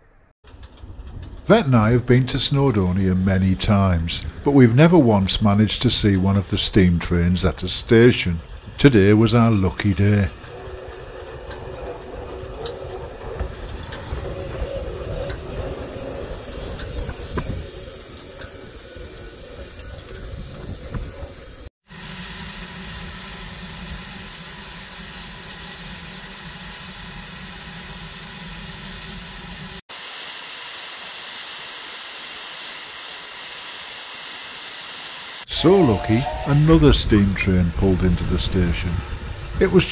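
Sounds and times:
wheels clicking over rails: 0:00.4 - 0:21.7
steam locomotive rumble: 0:00.4 - 0:39.9
loud high steam blowing off: 0:00.6 - 0:39.9
steam hissing: 0:02.3 - 0:39.9.

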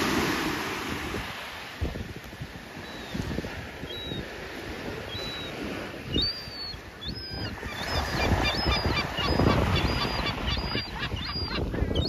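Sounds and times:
small waves breaking on shore: 0:00.0 - 0:10.4
young gull whistling calls: 0:05.1 - 0:12.0.

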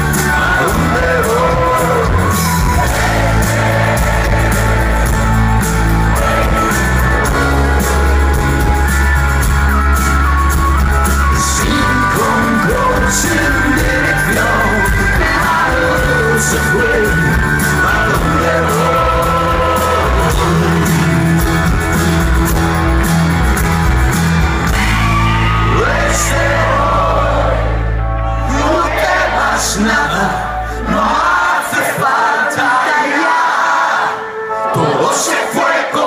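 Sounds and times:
crowd shouting: 0:00.0 - 0:08.3, 0:24.5 - 0:36.0
person singing: 0:00.0 - 0:08.9, 0:11.2 - 0:21.5, 0:24.8 - 0:36.0
live rock band playing: 0:00.0 - 0:35.8.

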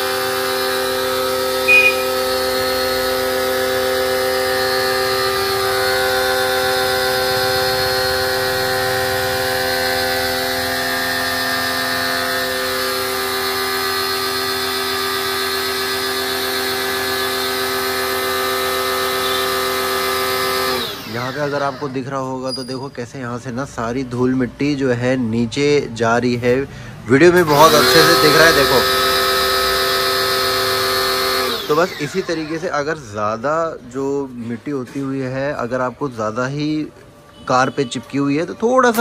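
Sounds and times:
pressure washer motor humming: 0:00.0 - 0:21.8, 0:27.4 - 0:32.8
short sharp sound: 0:01.7 - 0:02.4.

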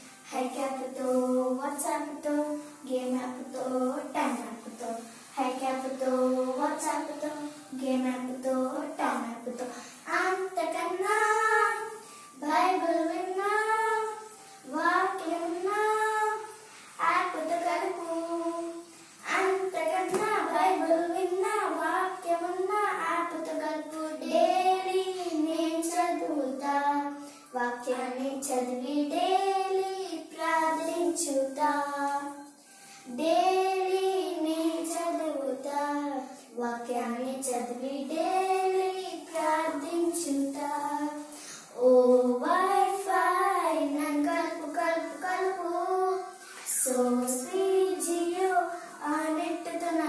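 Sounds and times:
girls singing: 0:00.0 - 0:50.0.

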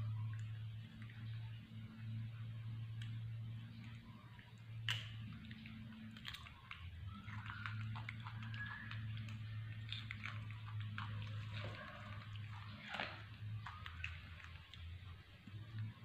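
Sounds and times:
monkey chewing watermelon: 0:00.0 - 0:16.0
steady low hum: 0:00.0 - 0:16.0
wet smacking clicks: 0:04.6 - 0:15.2.

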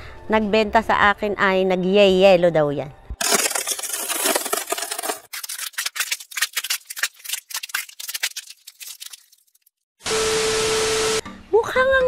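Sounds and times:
ice crackling: 0:03.2 - 0:09.7.

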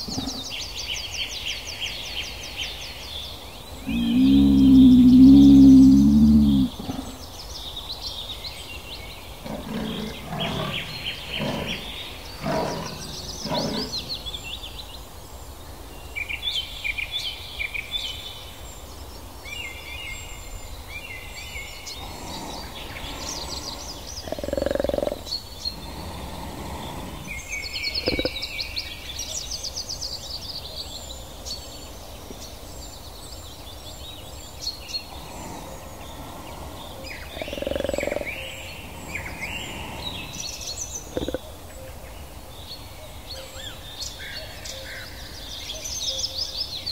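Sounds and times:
birds chirping and singing: 0:00.0 - 0:01.4, 0:03.3 - 0:14.9, 0:20.4 - 0:31.7, 0:32.4 - 0:42.0
short low animal calls: 0:03.8 - 0:07.2.

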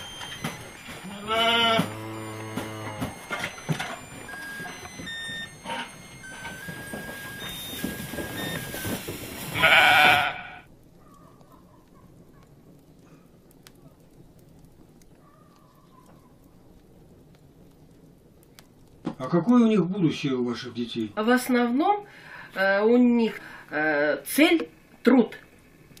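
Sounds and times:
sheep bleating: 0:01.0 - 0:03.1, 0:09.5 - 0:10.7.

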